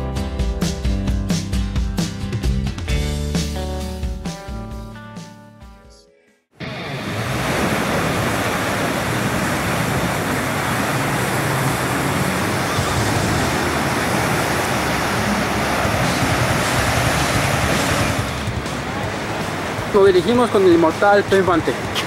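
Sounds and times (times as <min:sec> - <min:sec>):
surf washing over rocks: 0:06.6 - 0:22.0.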